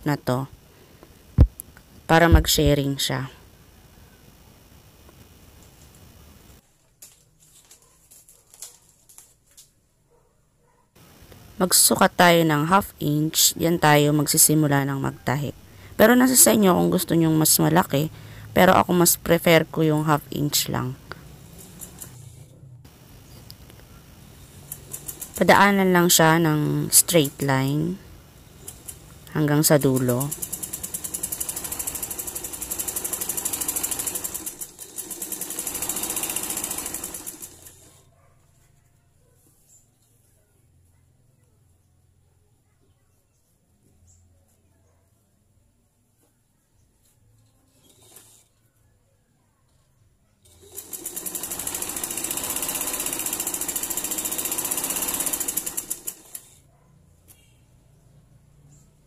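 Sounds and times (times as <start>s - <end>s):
sewing machine stitching: 21.1s - 22.5s, 24.5s - 25.7s, 26.8s - 27.7s, 28.5s - 38.0s, 47.7s - 48.6s, 50.4s - 56.6s.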